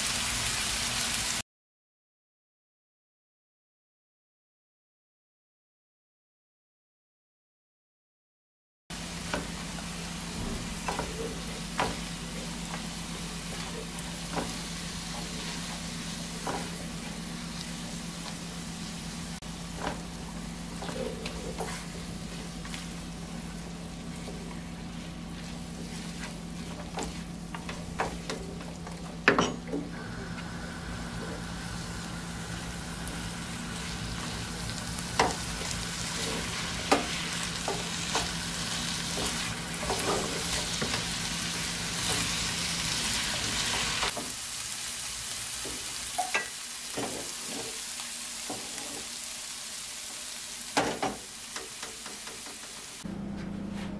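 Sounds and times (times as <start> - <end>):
vegetables sizzling in oil: 0.0 - 1.4, 9.0 - 29.2, 30.0 - 53.0
low steady hum: 9.2 - 43.3
spatula stirring and scraping: 10.8 - 17.6, 19.7 - 29.2, 33.6 - 42.6, 47.0 - 47.8.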